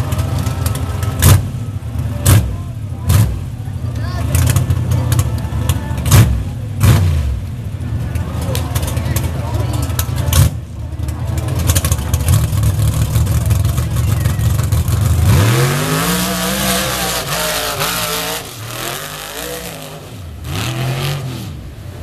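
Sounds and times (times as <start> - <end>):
truck engine revving: 0.0 - 22.0.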